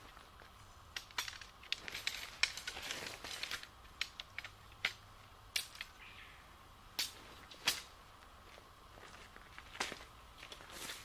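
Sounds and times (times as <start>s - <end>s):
tent pole clicks and knocks: 0.9s - 6.0s
tent fabric rustling: 1.8s - 3.6s.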